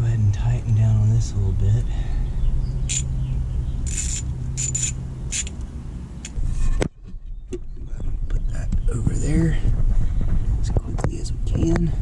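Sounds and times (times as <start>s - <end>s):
steady low hum: 0.0s - 12.0s
tool scraping clicks: 3.9s - 5.6s.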